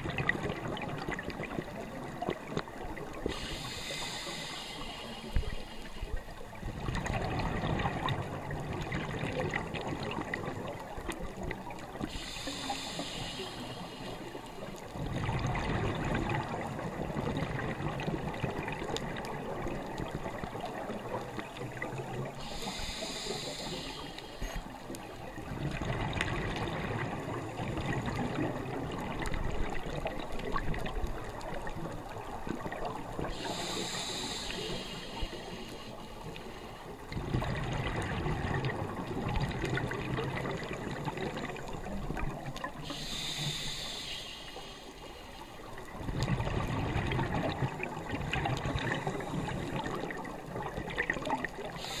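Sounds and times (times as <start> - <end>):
exhaled air bubbling underwater: 0.0 - 52.0
scuba regulator inhalation hiss: 3.3 - 6.2, 12.0 - 14.7, 22.3 - 24.9, 33.2 - 37.0, 42.8 - 45.6, 51.6 - 52.0.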